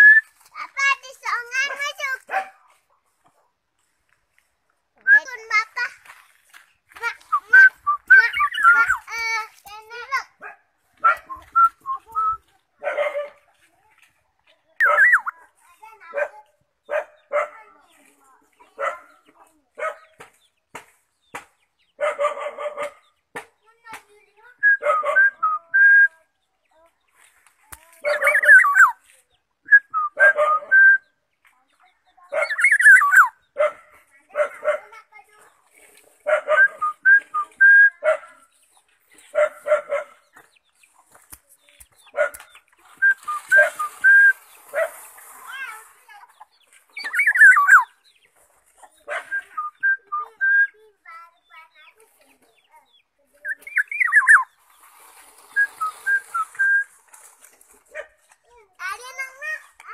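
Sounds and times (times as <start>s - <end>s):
oriole whistling: 11.0s - 12.4s, 43.0s - 44.4s, 49.3s - 50.8s, 53.5s - 54.4s, 55.6s - 57.0s
oriole warbling call: 32.5s - 33.3s, 47.0s - 47.9s, 53.5s - 54.5s
short single whistles: 43.0s - 44.4s, 55.6s - 56.9s.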